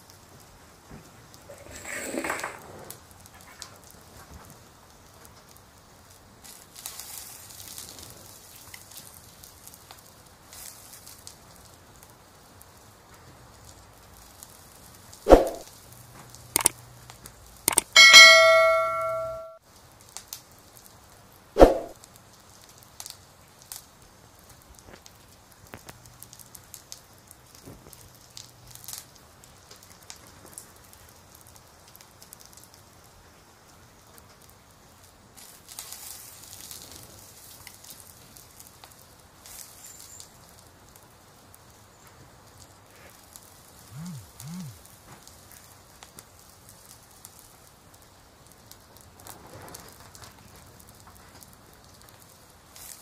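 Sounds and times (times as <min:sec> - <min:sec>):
fire crackling in a stove: 0:00.0 - 0:53.0
bright bell ding: 0:17.7 - 0:19.6
clicks: 0:17.7 - 0:19.6.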